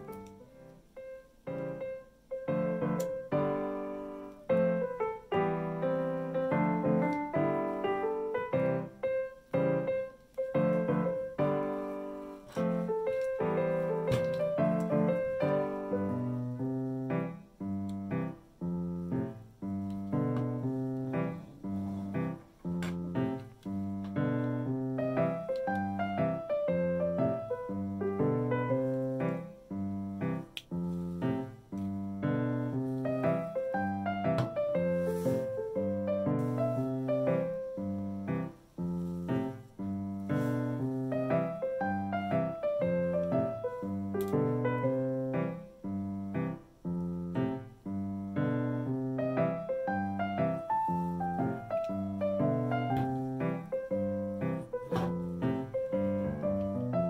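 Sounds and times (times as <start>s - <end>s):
piano music: 0.0s - 57.0s.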